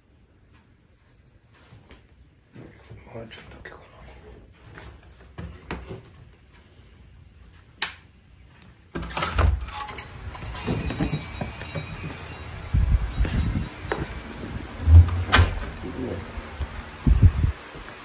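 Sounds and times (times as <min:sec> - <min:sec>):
knocking and rustling: 0:09.0 - 0:14.2.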